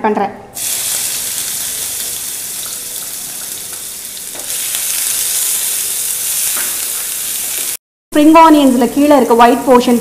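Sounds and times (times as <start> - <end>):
onions sizzling in hot oil: 0.6 - 7.8.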